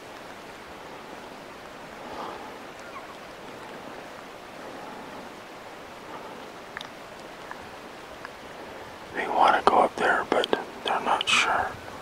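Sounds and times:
faint falling chirps: 2.8 - 3.7.

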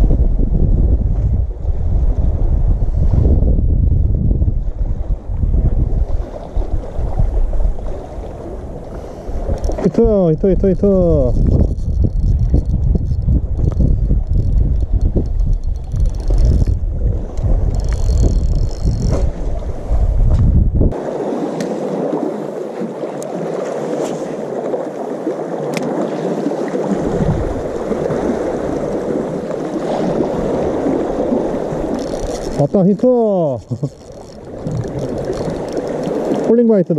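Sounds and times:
wind buffeting microphone: 0.0 - 22.3, 25.9 - 36.5
sea water among rocks: 0.0 - 36.9
faint clicks: 9.5 - 10.0, 10.6 - 19.3, 31.9 - 36.5.

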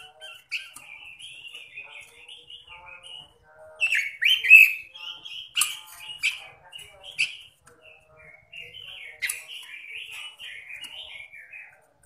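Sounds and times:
bird singing whistled phrases: 3.8 - 6.4.

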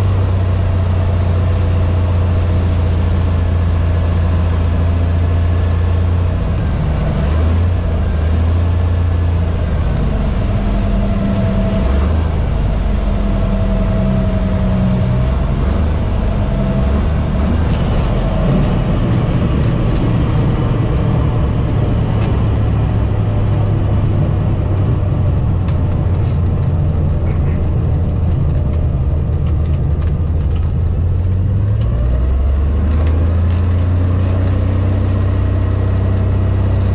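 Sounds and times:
rushing wind: 0.0 - 36.9
small plane engine and propeller: 0.0 - 36.9.

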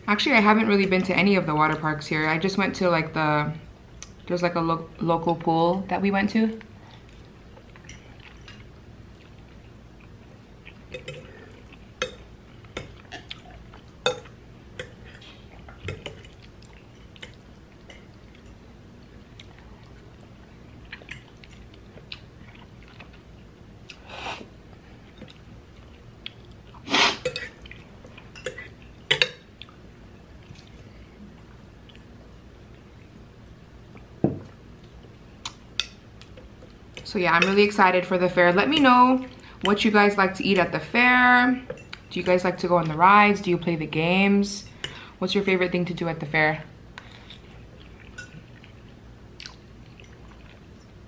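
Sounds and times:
chewing and slurping noodles: 47.2 - 51.0.

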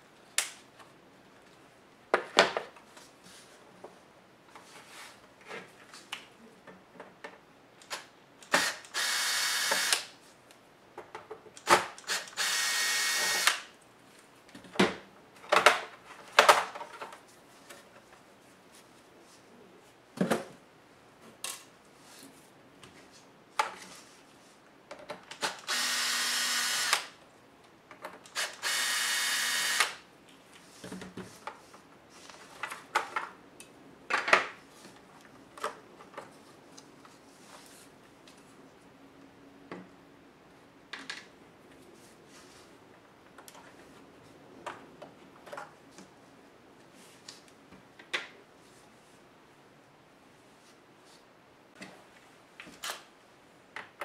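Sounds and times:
electric screwdriver whirring: 8.5 - 10.1, 12.1 - 13.6, 25.6 - 27.1, 28.3 - 30.0.

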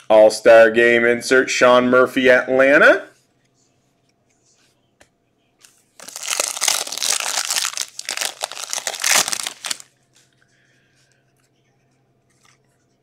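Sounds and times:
foil wrapper tearing and crinkling: 6.0 - 9.9.

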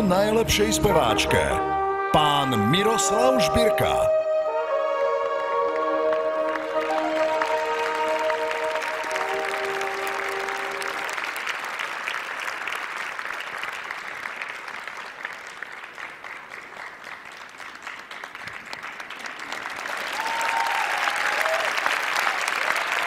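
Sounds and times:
audience applauding: 5.2 - 23.0.

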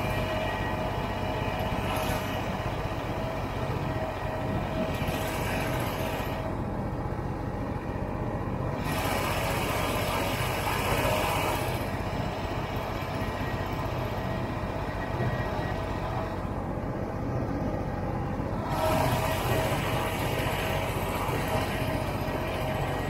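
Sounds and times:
snowmobile engine running: 8.6 - 16.6, 18.2 - 23.0.

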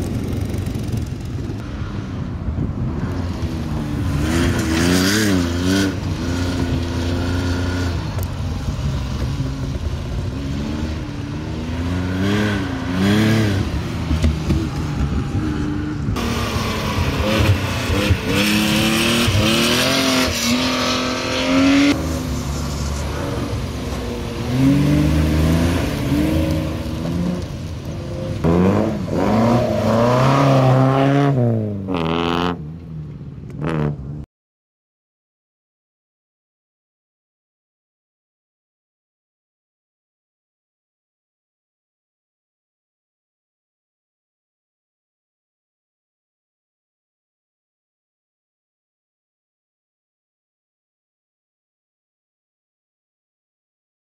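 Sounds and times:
rally car engines revving: 0.0 - 34.2.

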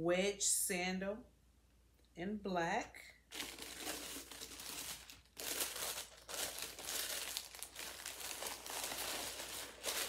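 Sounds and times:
paper crinkling and rustling: 3.3 - 10.0.

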